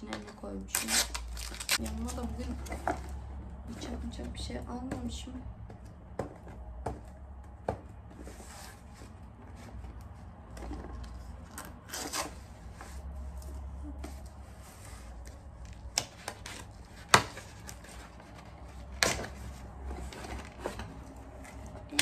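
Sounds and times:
paper and cardboard rustling: 8.0s - 21.9s.

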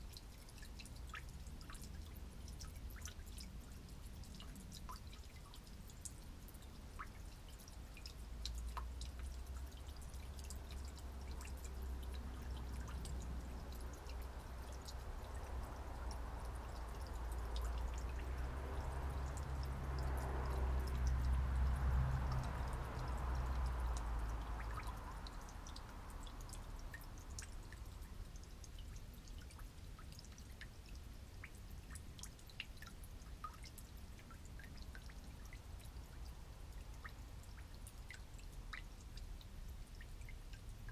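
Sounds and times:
fuel dripping into pan: 0.0s - 40.9s.

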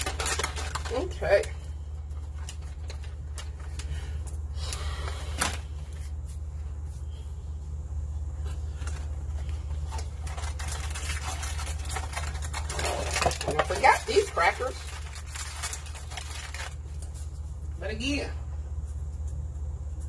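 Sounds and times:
food packaging clicks and rustles: 0.0s - 6.3s, 8.4s - 17.8s
steady low hum: 0.0s - 20.0s.

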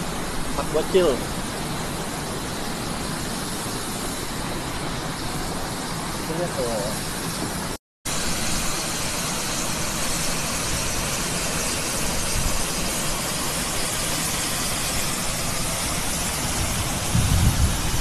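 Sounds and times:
steady outdoor hiss: 0.0s - 18.0s
wind gusts hitting microphone: 15.8s - 18.0s.

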